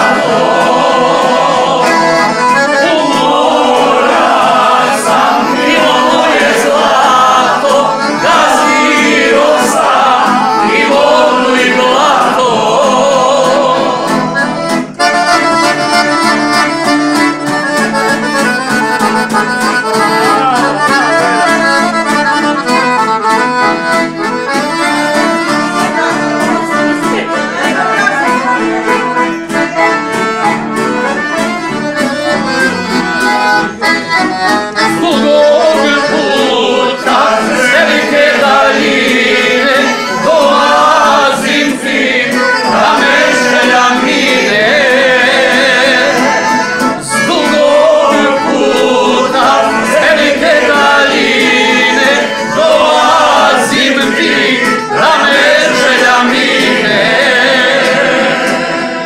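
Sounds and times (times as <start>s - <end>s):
group of people singing: 0.0s - 15.0s, 34.7s - 59.0s
accordion playing folk tune: 0.0s - 59.0s
plucked string instrument: 0.0s - 59.0s.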